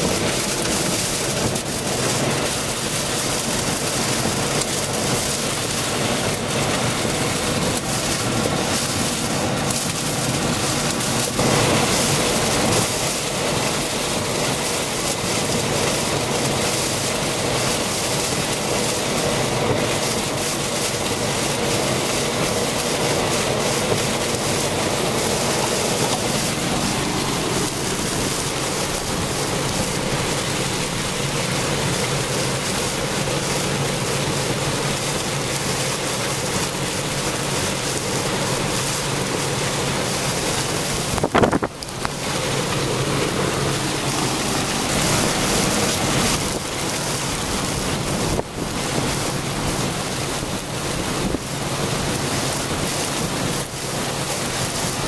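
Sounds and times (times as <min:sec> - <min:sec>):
heavy rain falling: 0:00.0 - 0:55.0
river rushing: 0:19.5 - 0:55.0.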